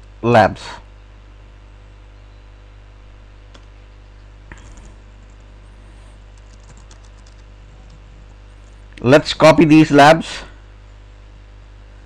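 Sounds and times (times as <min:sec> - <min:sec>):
steady low hum: 0:00.0 - 0:12.0
keyboard keystrokes: 0:06.4 - 0:08.0.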